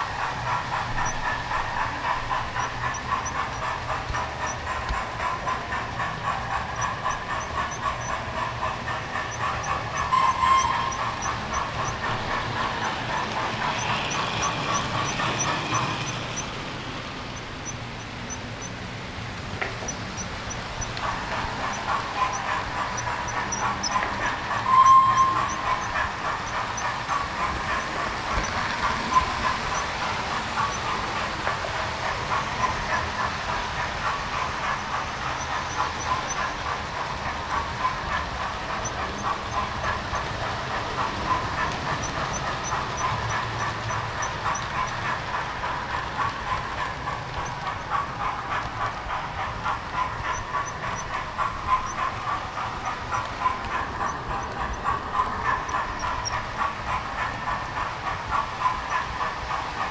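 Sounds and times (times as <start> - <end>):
clicking over rail joints: 0.0 - 59.9
model train wheels rattling: 0.0 - 59.9.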